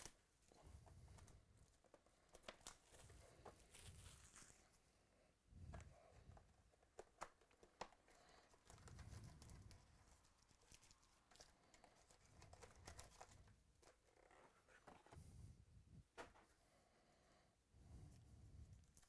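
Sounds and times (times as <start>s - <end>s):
foil packs crinkling and rustling: 2.4s - 4.7s.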